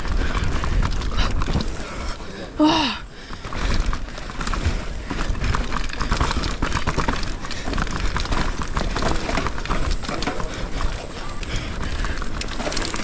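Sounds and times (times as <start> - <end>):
bike rattling over roots: 0.0 - 13.0
low tyre rumble: 0.0 - 13.0.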